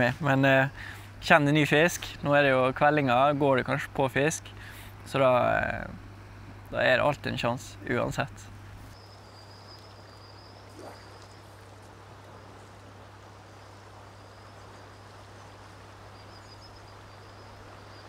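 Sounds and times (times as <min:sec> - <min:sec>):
river water rushing: 0:10.6 - 0:18.0.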